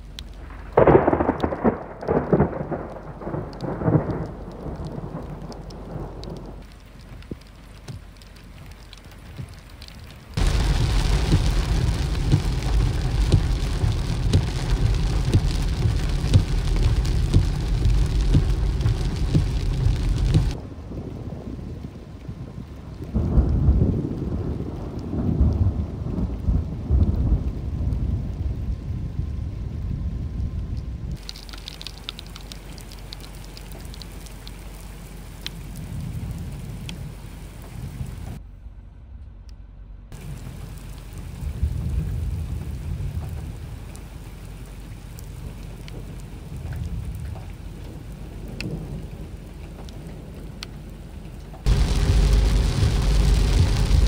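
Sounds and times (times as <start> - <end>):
heavy rain pouring on street: 0.0 - 38.4, 40.2 - 54.0
low rumble: 0.0 - 54.0
drop splashes: 0.2 - 20.6, 31.2 - 37.7.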